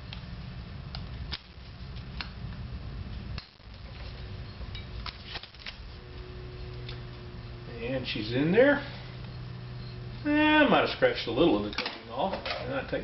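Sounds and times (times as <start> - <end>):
low rumble: 0.0 - 10.4.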